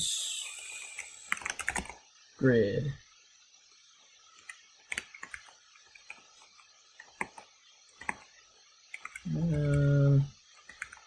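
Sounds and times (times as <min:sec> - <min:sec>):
faint room hiss: 0:00.0 - 0:11.0
keyboard and mouse clicks: 0:00.6 - 0:02.0, 0:04.4 - 0:08.3, 0:08.9 - 0:09.9, 0:10.5 - 0:11.0.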